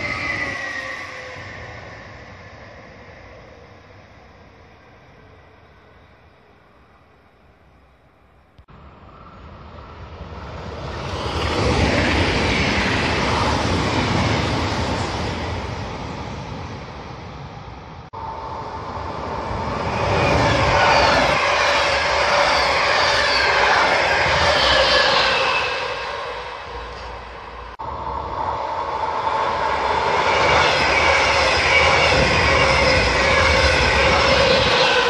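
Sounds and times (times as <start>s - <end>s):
electric train passing: 8.7s - 35.0s
train wheels on rails: 28.8s - 35.0s.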